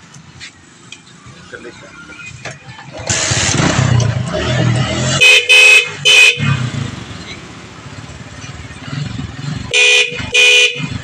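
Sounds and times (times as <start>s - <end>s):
motorcycle engine starting and running: 2.7s - 11.0s
electric horn blasts: 5.1s - 6.6s, 9.7s - 11.0s.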